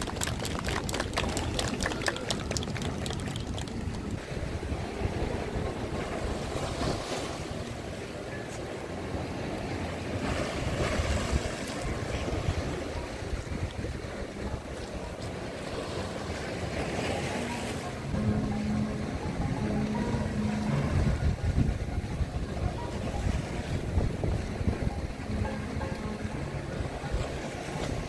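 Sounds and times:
surf splashing on concrete: 0.0s - 5.1s
wind rumble on microphone: 0.0s - 28.0s.

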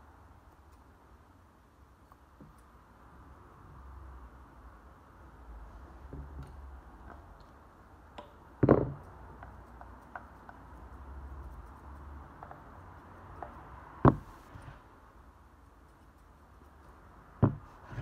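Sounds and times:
loud knocks: 14.0s - 14.3s, 17.4s - 17.7s.

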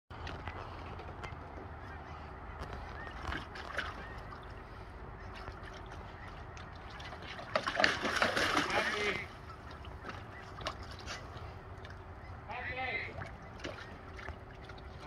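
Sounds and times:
low steady rumble: 0.1s - 15.0s
dog splashing in water: 6.6s - 12.0s.

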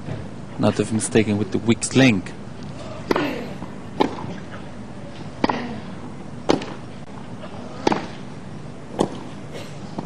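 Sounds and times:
racquets striking tennis ball: 3.0s - 10.0s.

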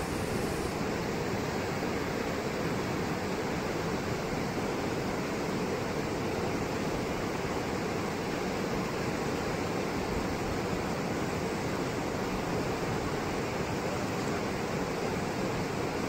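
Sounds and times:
river rushing over rocks: 0.0s - 16.0s.

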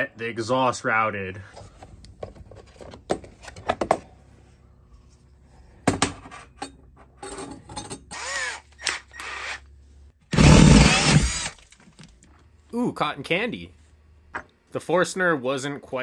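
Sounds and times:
cordless drill boring through wall: 8.1s - 9.6s, 10.3s - 11.6s.

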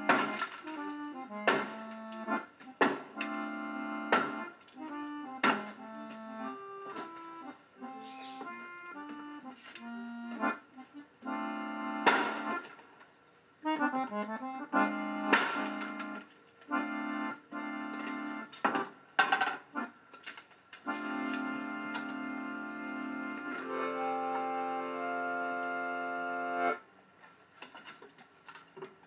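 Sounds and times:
accordion chords: 0.0s - 12.8s, 13.6s - 18.6s, 19.7s - 20.0s, 20.8s - 26.8s
hammer knocking on wooden post: 1.4s - 1.9s, 4.1s - 4.4s.

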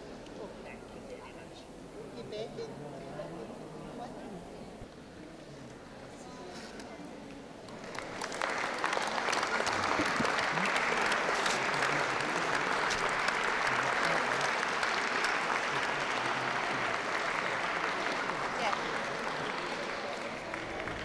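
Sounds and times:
audience applauding: 7.7s - 21.0s.

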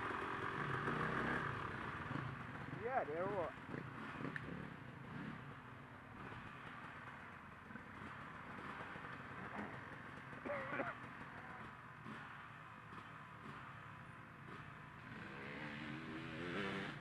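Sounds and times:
faint dirt bike engines: 0.0s - 17.0s.

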